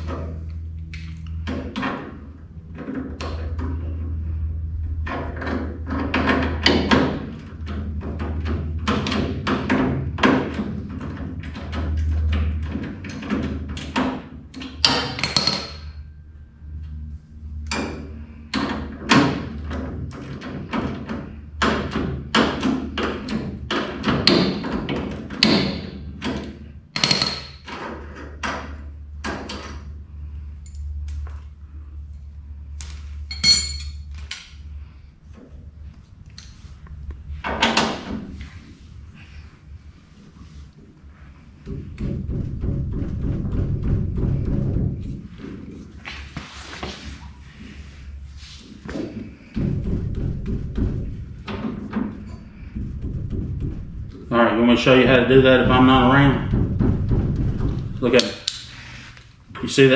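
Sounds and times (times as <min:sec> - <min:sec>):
steady low hum: 0:00.0 - 0:59.9
hand tools clinking on steel: 0:33.3 - 0:34.0.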